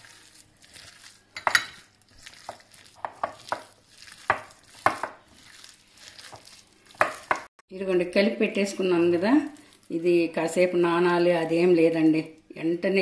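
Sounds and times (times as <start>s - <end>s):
hand squishing wet batter: 0.0s - 7.5s.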